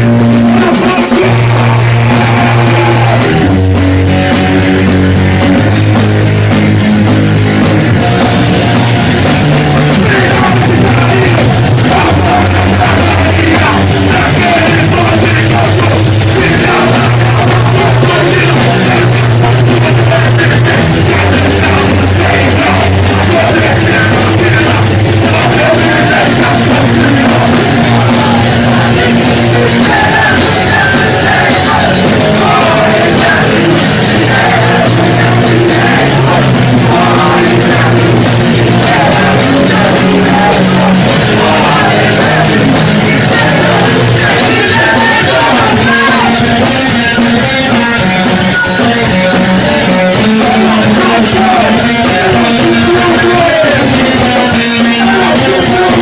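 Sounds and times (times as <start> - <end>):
electric guitar: 0.0 - 56.0
punk rock band playing: 0.0 - 56.0
person shouting into a microphone: 44.4 - 46.5.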